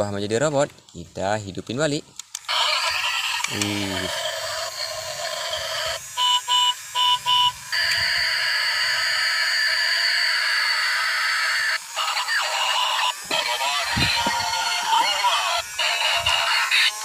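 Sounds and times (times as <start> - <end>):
long steady electronic tone: 4.8 - 17.0.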